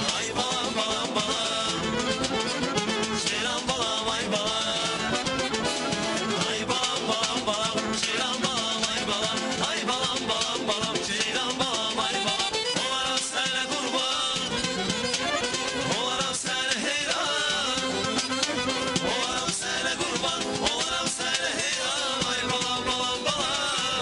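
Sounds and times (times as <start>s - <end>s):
man singing into microphone: 0.0s - 2.2s, 3.1s - 5.2s, 6.2s - 14.8s, 15.8s - 18.2s, 18.9s - 24.0s
live band playing pop song: 0.0s - 24.0s.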